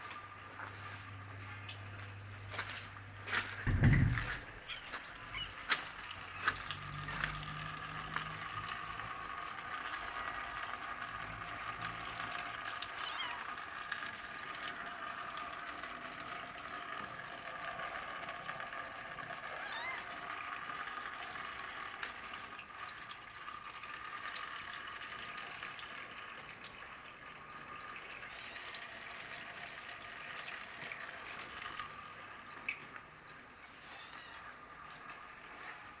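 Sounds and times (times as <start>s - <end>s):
freezing rain pattering on paving: 1.7s - 23.6s.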